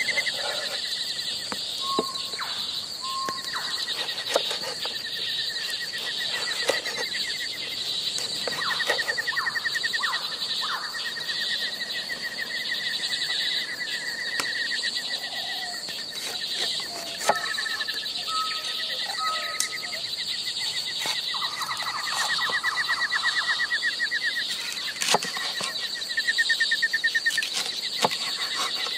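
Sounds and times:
knife chopping on wooden board: 4.0 - 4.9, 25.0 - 25.7, 27.4 - 28.9
trilling animal calls: 16.4 - 24.4.

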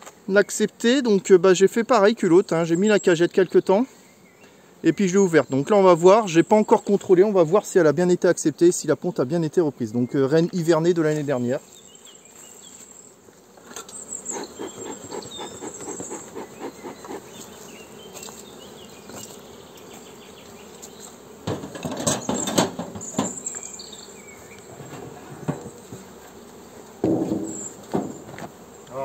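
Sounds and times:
honeybees buzzing: 0.0 - 29.0
smoker puffing: 14.2 - 17.4
metal hive roof clattering: 21.4 - 23.4, 27.0 - 28.6.

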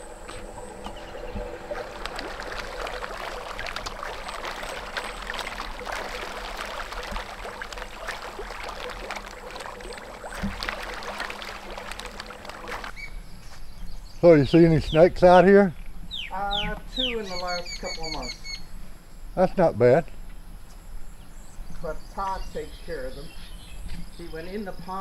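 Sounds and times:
fish splashing at water surface: 0.0 - 13.0.

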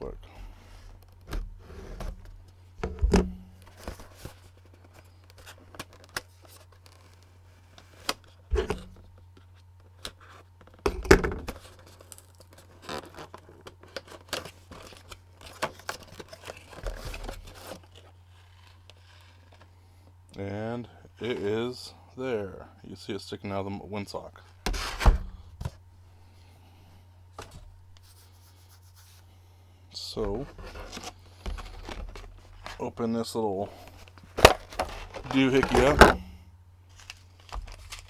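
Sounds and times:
steady low hum: 0.0 - 38.0
plastic packaging rustling: 11.5 - 19.7, 30.4 - 32.9, 33.8 - 36.2, 36.9 - 38.0.

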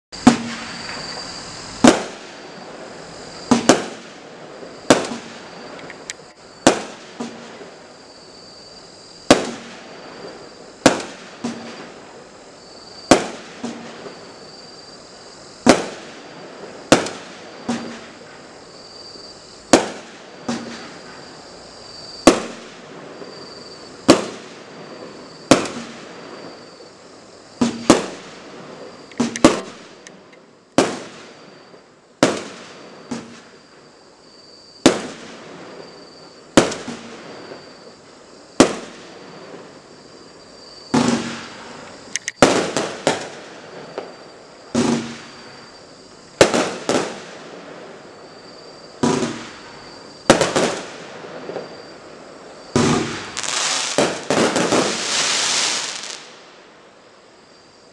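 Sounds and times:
firework bangs: 0.2 - 6.0, 6.6 - 7.8, 9.2 - 12.1, 13.0 - 14.3, 15.6 - 18.3, 19.7 - 21.3, 22.2 - 26.6, 27.6 - 30.0, 30.8 - 33.6, 34.8 - 35.9, 36.5 - 37.7, 38.6 - 39.7, 40.9 - 45.7, 46.4 - 47.7, 49.0 - 51.8, 52.6 - 56.4.

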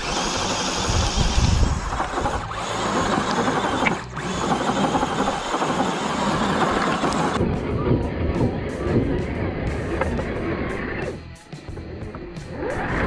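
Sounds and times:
tires scrabbling on rocky dirt: 0.0 - 11.2
electric motor and drivetrain whine: 0.0 - 13.0.

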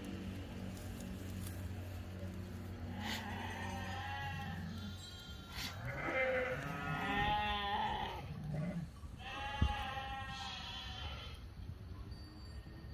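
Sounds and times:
sheep bleating: 2.8 - 11.4.

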